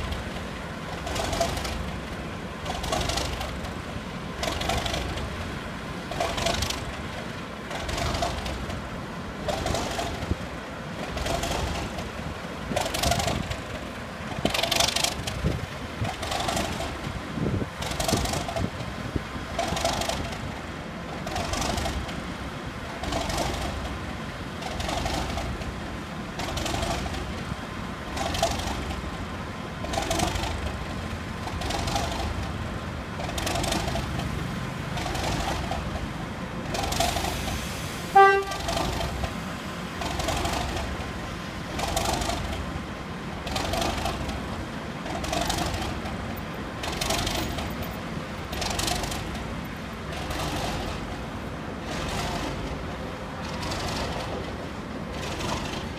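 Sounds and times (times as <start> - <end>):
diesel locomotive running: 0.0 - 55.9
locomotive horn toot: 38.1 - 38.9.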